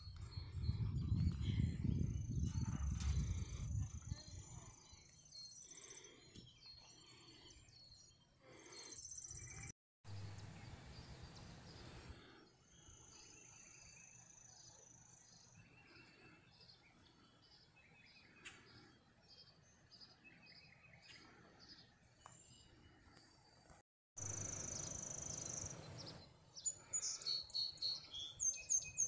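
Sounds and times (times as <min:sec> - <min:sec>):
wind rumble on microphone: 0:00.0 - 0:04.8
birds chirping: 0:00.0 - 0:29.0.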